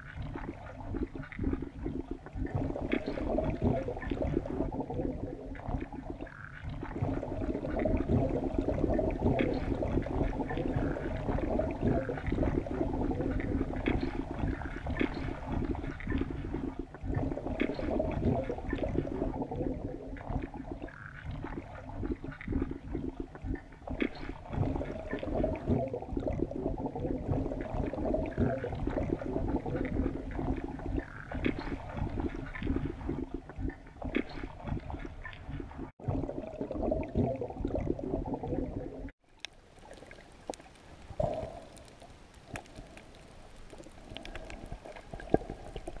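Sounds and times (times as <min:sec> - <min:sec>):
underwater gurgling and bubbling: 0:00.0 - 0:46.0.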